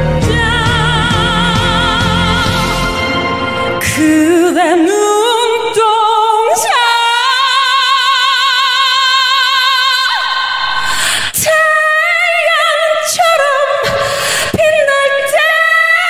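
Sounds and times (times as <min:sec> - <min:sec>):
sparse backing music: 0:00.0 - 0:05.3
woman singing a ballad: 0:00.0 - 0:16.0.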